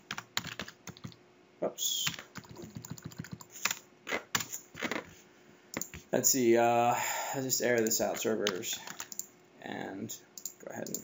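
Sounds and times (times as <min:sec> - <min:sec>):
typing on computer keyboard: 0:00.0 - 0:01.2, 0:02.1 - 0:03.8, 0:07.8 - 0:09.3, 0:10.4 - 0:11.0.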